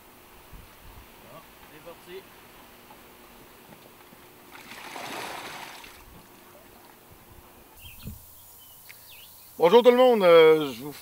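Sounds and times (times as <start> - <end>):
water pouring and splashing: 4.5 - 6.1.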